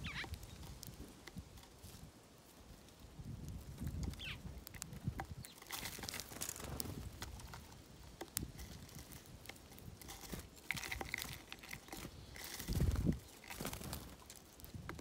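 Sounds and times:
birds pecking on metal feeder: 0.0 - 15.0
seed rustling: 0.0 - 15.0
wing flutters: 5.7 - 7.4, 10.2 - 14.3.

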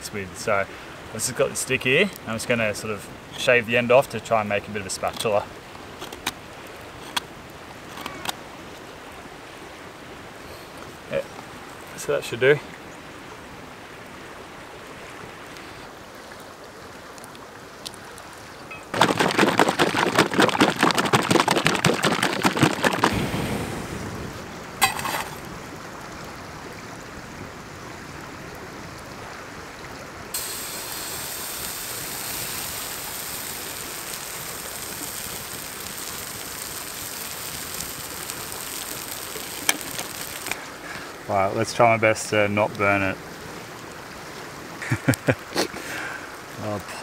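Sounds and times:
campfire hissing: 0.0 - 12.6, 13.4 - 26.2, 30.3 - 42.6
river rushing: 0.0 - 47.0
loud fast rattle: 18.9 - 23.2, 30.4 - 40.6.

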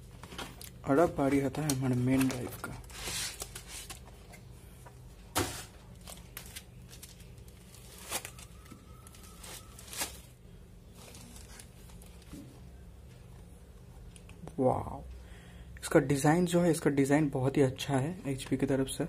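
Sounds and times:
low steady hum: 0.0 - 19.0
plastic wrap crinkling: 5.6 - 12.4.

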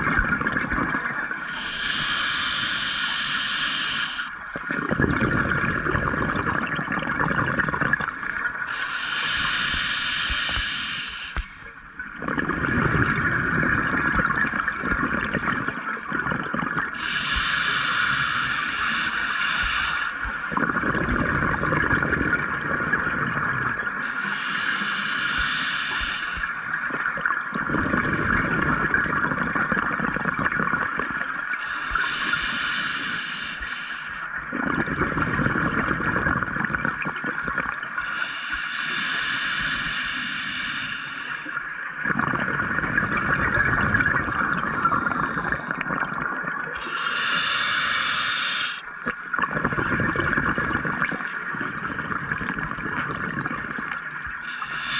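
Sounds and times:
hissing inhale through regulator: 1.2 - 6.8, 7.4 - 13.2, 13.8 - 15.6, 16.8 - 22.2, 23.1 - 28.6, 30.0 - 54.9
steady hiss: 1.4 - 4.4, 8.7 - 11.7, 17.0 - 20.6, 24.0 - 26.9, 31.6 - 34.3, 38.0 - 41.7, 46.8 - 48.9, 54.4 - 54.9.

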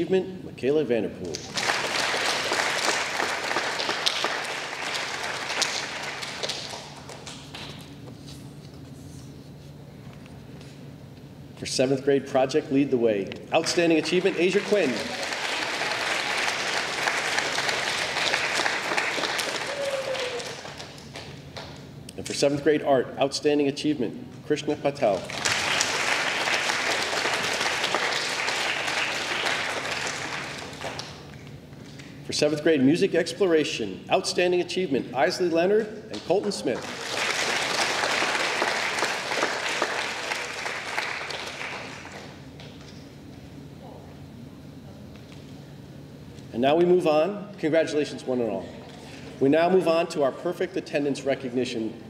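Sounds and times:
audience applauding: 1.4 - 7.4, 13.7 - 21.3, 25.2 - 31.2, 36.7 - 42.3.

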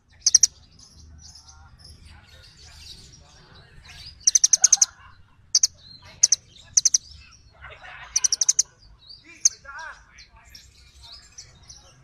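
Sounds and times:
bird chipping calls: 0.0 - 12.0.

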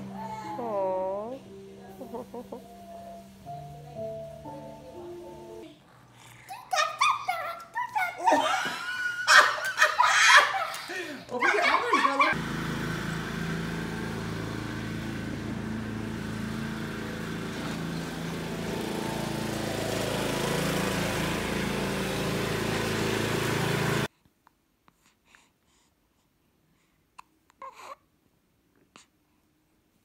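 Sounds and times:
lawn mower engine running: 12.3 - 24.1.

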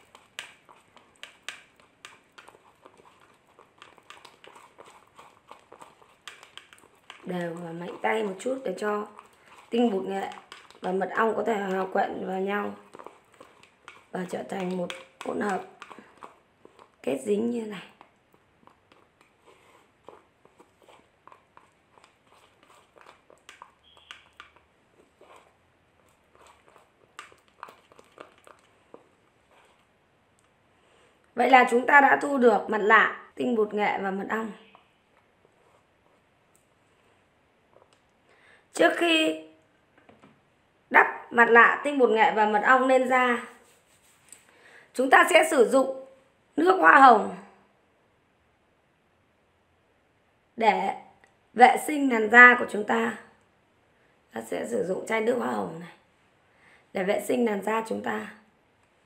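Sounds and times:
spoon scraping plastic bowl: 0.0 - 30.0, 34.0 - 36.3.

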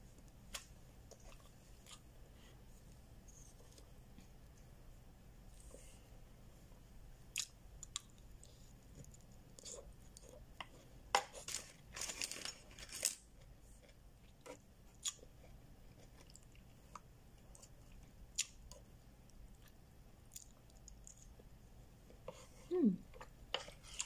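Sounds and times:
person chewing: 1.1 - 2.0, 13.4 - 18.9, 19.5 - 21.4.

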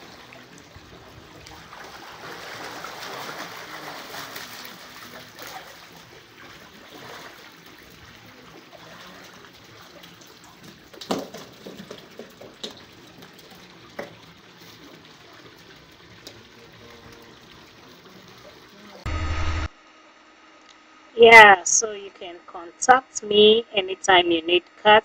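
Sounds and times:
water splashing and trickling: 0.0 - 19.0.

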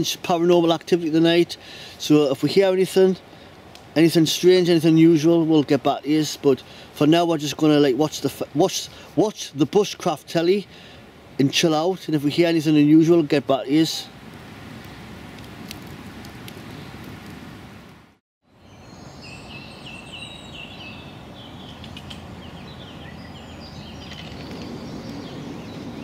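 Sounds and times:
background hiss: 0.0 - 17.6
campfire crackling and popping: 3.5 - 4.0, 14.2 - 18.0
small birds chirping: 18.5 - 26.0.

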